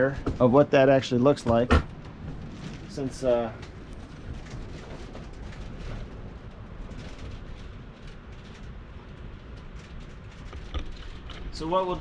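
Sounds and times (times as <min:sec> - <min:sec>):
wind rumbling: 0:00.0 - 0:12.0
faint clicks and rustles: 0:01.3 - 0:12.0.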